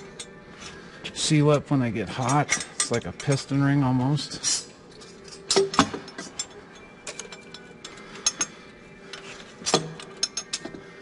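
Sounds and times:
metallic clicks of tool and bolts: 2.2s - 3.6s, 4.3s - 10.8s.

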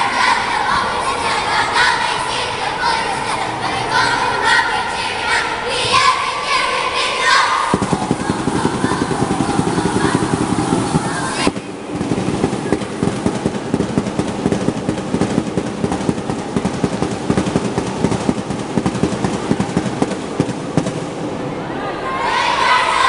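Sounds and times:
fast loud percussion: 7.7s - 21.1s.

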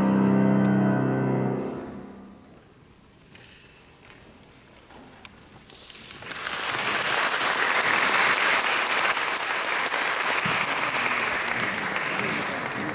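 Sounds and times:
audience applauding: 5.8s - 12.9s.

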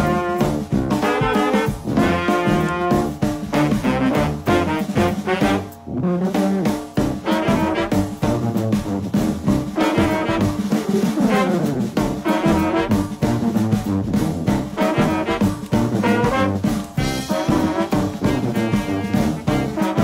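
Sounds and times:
upbeat jazzy brass music: 0.0s - 20.0s.

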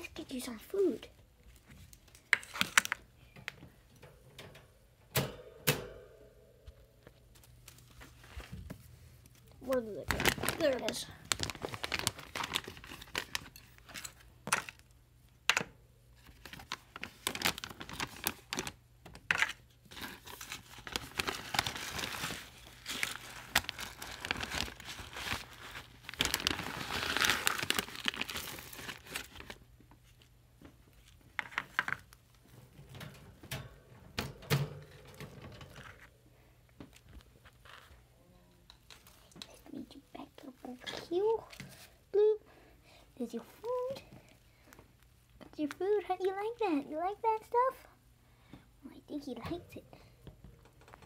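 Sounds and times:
plastic bag crinkling and rustling: 7.3s - 14.8s, 16.2s - 32.8s.

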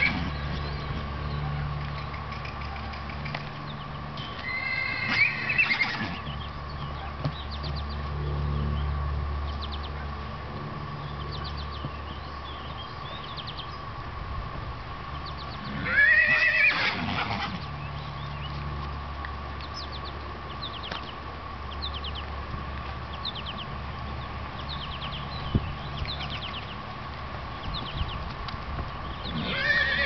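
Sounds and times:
horse whinnying: 4.4s - 6.2s, 15.7s - 17.6s, 29.3s - 30.0s.

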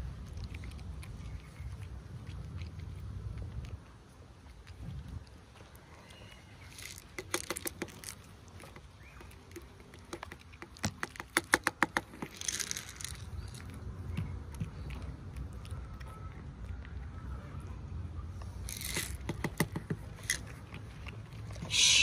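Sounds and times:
cats crunching food: 0.0s - 22.0s
kibble clicking onto wooden boards: 7.0s - 13.2s, 18.8s - 20.6s
brief hiss: 21.7s - 22.0s.

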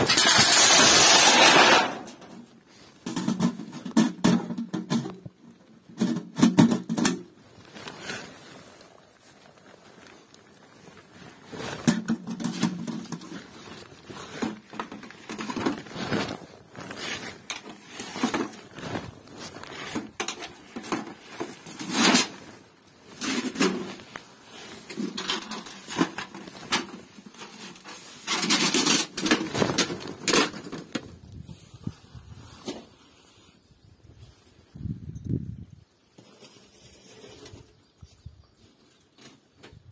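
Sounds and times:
thin metal clanking and scraping: 0.0s - 5.2s, 11.4s - 31.0s.

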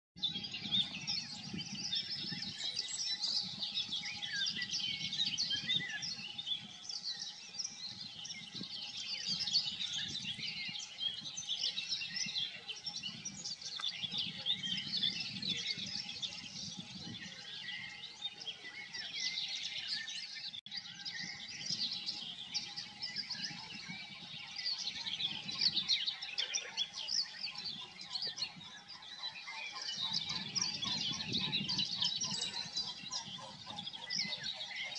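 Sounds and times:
songbirds chirping and trilling: 0.2s - 34.9s.

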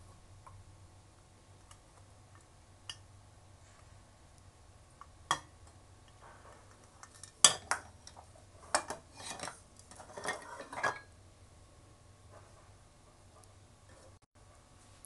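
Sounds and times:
metal scraping in pot: 6.4s - 11.1s
metal kitchenware clinking: 7.0s - 11.1s.

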